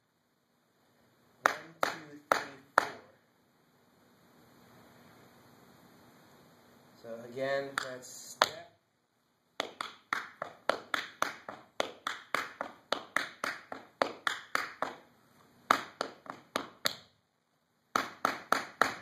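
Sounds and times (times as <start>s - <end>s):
tap shoes on wooden floor: 9.6s - 15.0s, 15.7s - 17.1s.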